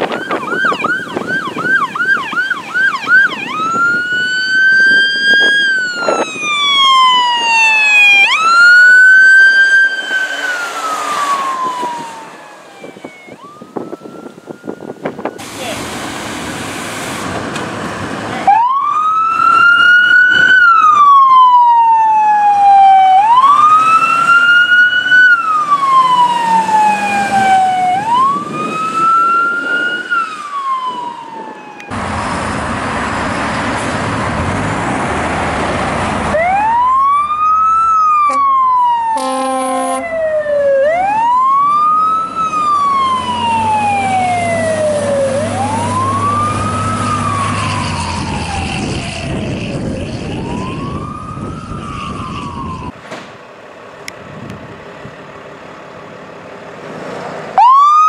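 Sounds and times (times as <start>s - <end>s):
second siren wailing: 0.0s - 15.8s, 18.4s - 32.0s, 36.3s - 53.0s, 57.6s - 58.0s
fire truck siren wailing: 0.0s - 53.0s, 57.5s - 58.0s
low engine sound: 30.2s - 39.0s, 40.9s - 57.7s
air horn blast: 38.2s - 38.5s, 39.1s - 40.1s.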